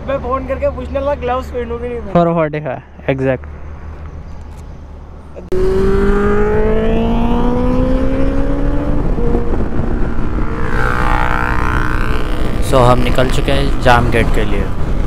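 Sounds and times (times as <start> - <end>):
motorcycle engine accelerating: 5.5 - 13.9
wind rush: 5.6 - 15.0.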